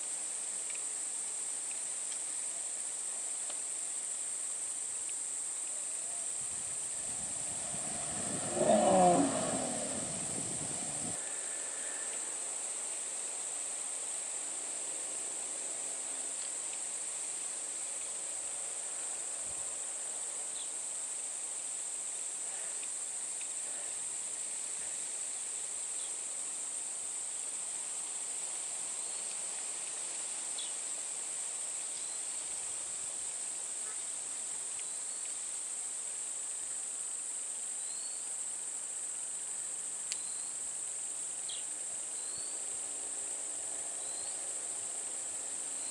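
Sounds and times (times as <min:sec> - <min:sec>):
insects droning: 0:00.0 - 0:45.9
rising bird chirps: 0:06.9 - 0:11.2.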